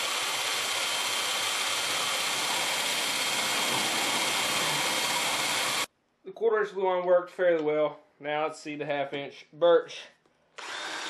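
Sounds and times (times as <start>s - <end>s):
drill bit rasping through wood: 0.0s - 5.9s, 10.6s - 11.0s
drill motor whine: 0.0s - 5.9s, 10.6s - 11.0s.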